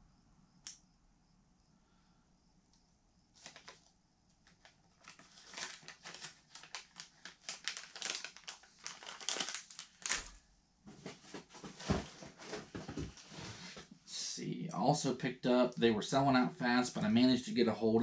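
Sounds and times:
plastic bags crinkling: 3.4 - 10.4.

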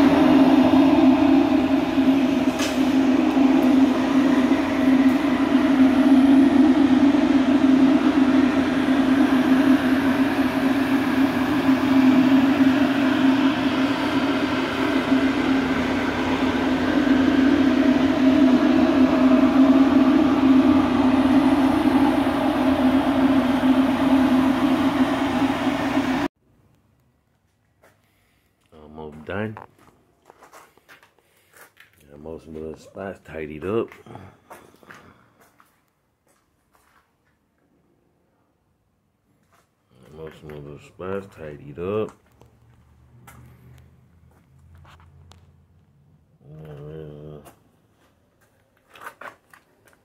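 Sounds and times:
machinery droning hum: 0.0 - 26.3, 40.0 - 48.6.

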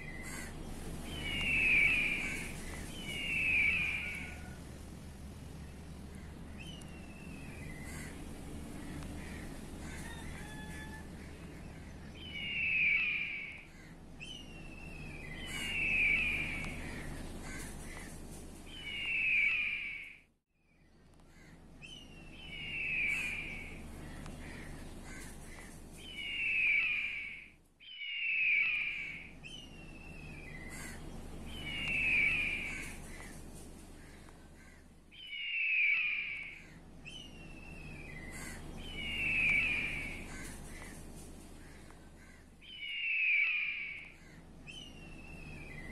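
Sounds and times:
bird calling harshly: 15.2 - 18.1, 22.4 - 23.8, 24.4 - 29.3, 30.2 - 33.4, 34.0 - 45.9.

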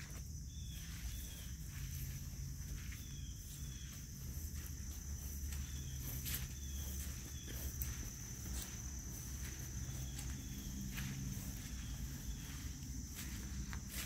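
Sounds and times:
crickets trilling: 0.0 - 14.0.

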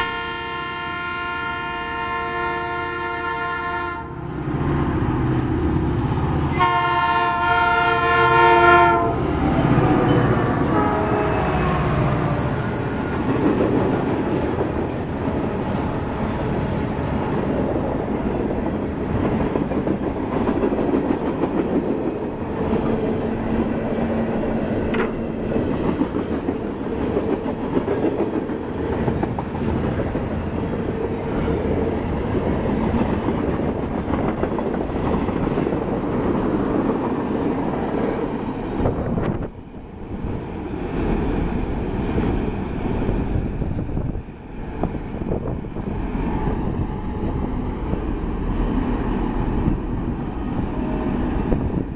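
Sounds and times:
freight train rumbling: 0.0 - 51.9
wheels clicking over rail joints: 24.7 - 38.3.

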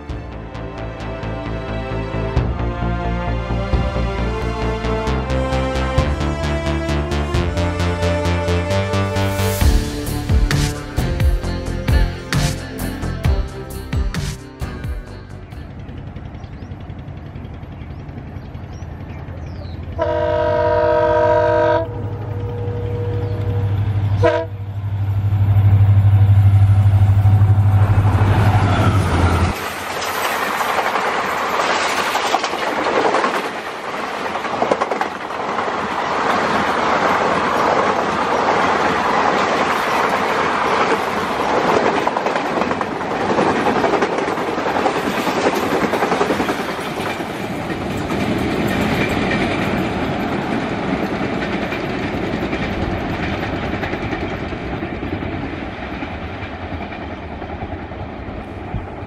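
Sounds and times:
locomotive engine hum: 0.0 - 31.4
locomotive horn blasts: 20.0 - 24.7
train wheels clacking on rail joints: 29.1 - 59.0.

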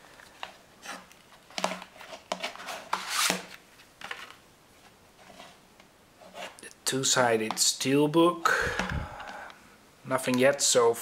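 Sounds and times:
sliding rustle: 0.3 - 5.6.

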